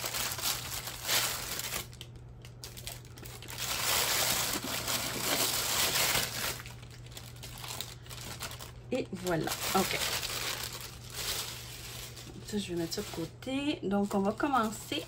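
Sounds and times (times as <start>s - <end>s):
plastic mailer bag crinkling: 0.0s - 15.0s.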